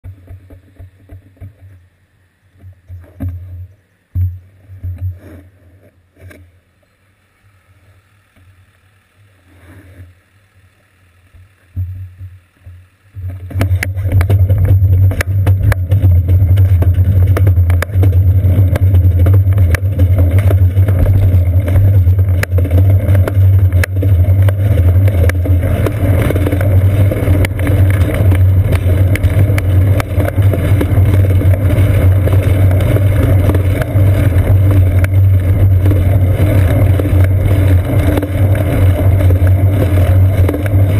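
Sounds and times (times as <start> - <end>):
clicks and crackles: 11.3 - 40.9
road rumble: 12.4 - 40.9.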